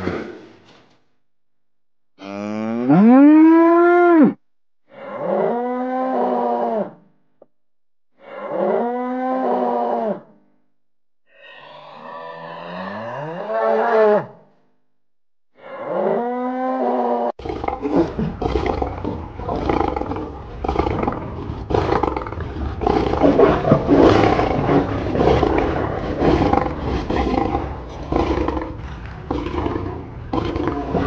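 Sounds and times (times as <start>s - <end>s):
cow mooing: 2.2s - 4.4s, 12.0s - 14.4s
lion growling and roaring: 15.6s - 31.0s.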